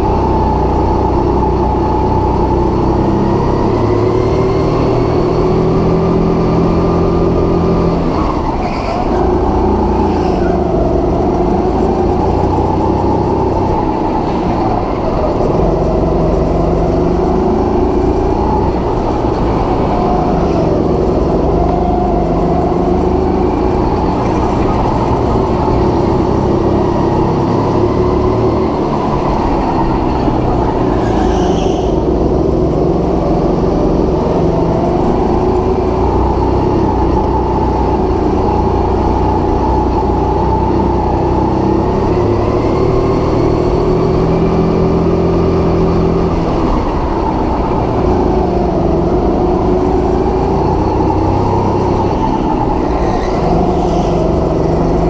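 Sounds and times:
go-kart engine running hard: 0:00.0 - 0:55.0.

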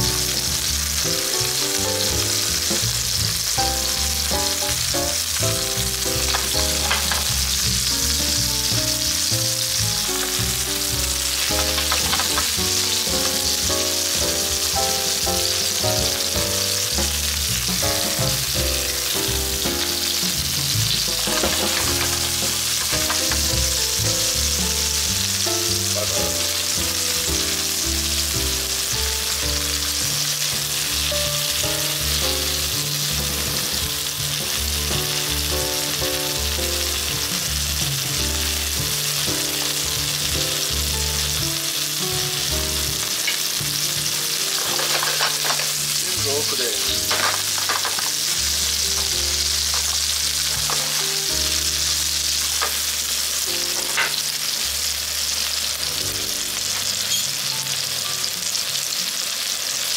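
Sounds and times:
food sizzling in a frying pan: 0:00.0 - 0:59.9
chopsticks tapping: 0:06.2 - 0:07.4, 0:11.4 - 0:13.4, 0:21.2 - 0:23.6.

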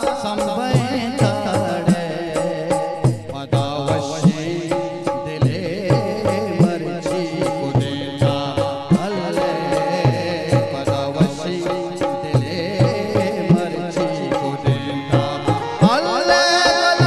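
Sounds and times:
benju melody: 0:00.0 - 0:17.0
hand drum beat: 0:00.0 - 0:17.0
harmonium: 0:00.0 - 0:17.0.

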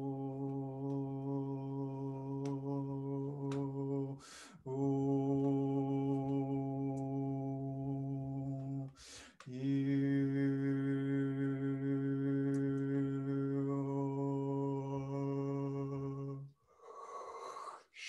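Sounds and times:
man breathing in: 0:04.2 - 0:04.7, 0:09.0 - 0:09.5.

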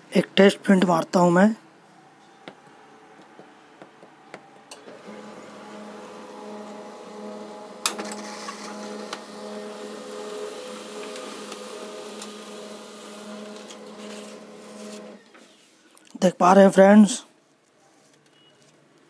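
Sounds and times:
printer motor hum: 0:04.7 - 0:15.3
printer click: 0:07.8 - 0:09.3.

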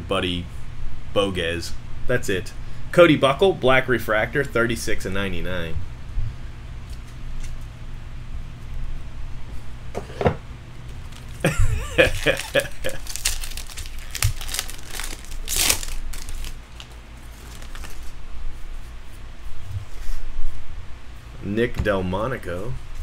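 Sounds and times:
foil wrapper tearing and crinkling: 0:11.1 - 0:18.2.

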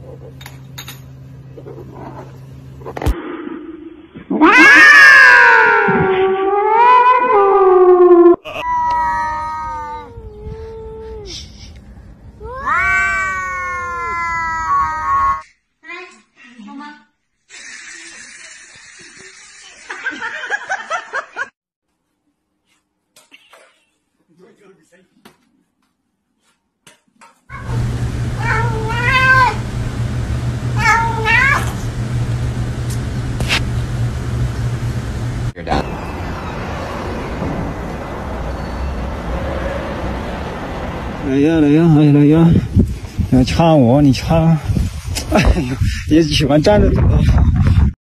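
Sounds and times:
cats yowling: 0:04.3 - 0:10.7, 0:12.4 - 0:15.4, 0:27.5 - 0:29.6, 0:30.8 - 0:31.8
steady low hum: 0:27.5 - 0:36.0.

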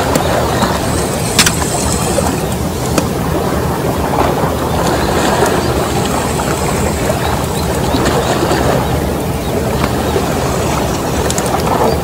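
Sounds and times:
sea washing against rocks: 0:00.0 - 0:12.0
wind rumbling on microphone: 0:00.0 - 0:12.0
faint clicks: 0:10.9 - 0:11.7.

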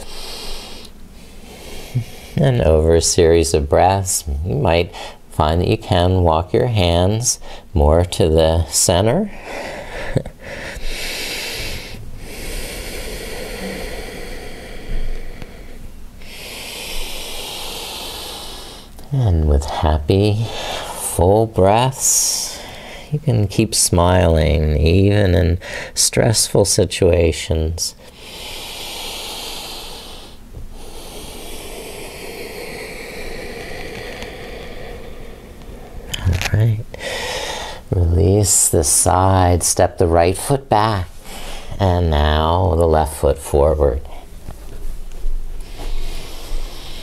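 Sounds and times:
slow deep breaths: 0:00.0 - 0:02.7, 0:07.4 - 0:07.7, 0:09.2 - 0:19.8, 0:20.4 - 0:21.1, 0:22.1 - 0:23.2, 0:25.6 - 0:26.0, 0:28.0 - 0:36.2, 0:36.9 - 0:38.0, 0:41.1 - 0:41.8, 0:44.0 - 0:47.0.

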